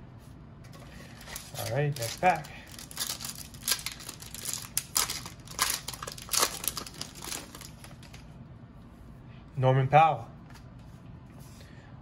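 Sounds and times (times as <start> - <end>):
foil wrapper crinkling: 0.8 - 8.2.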